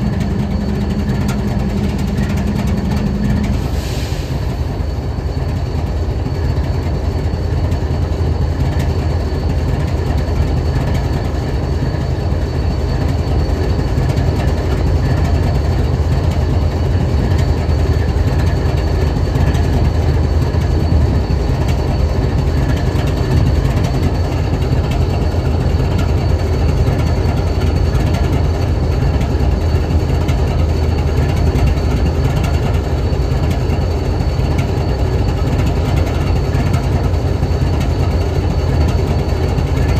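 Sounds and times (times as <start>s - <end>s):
faint high whine: 0.0s - 6.8s
locomotive engine idling rumble: 0.0s - 39.9s.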